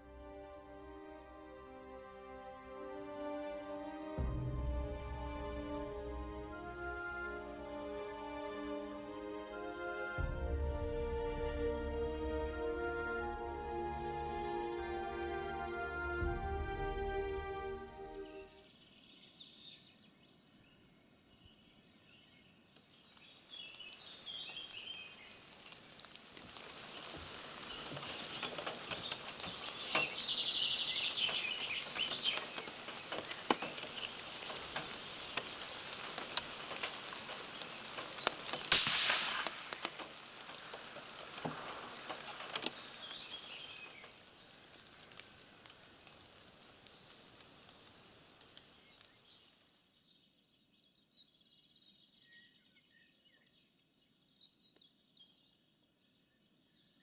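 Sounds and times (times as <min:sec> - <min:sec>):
birds chirping: 0:04.3 - 0:57.0
light clicks and rustles: 0:25.5 - 0:30.5, 0:31.1 - 0:38.7, 0:39.4 - 0:49.2
loud sharp crack: 0:38.4 - 0:42.8.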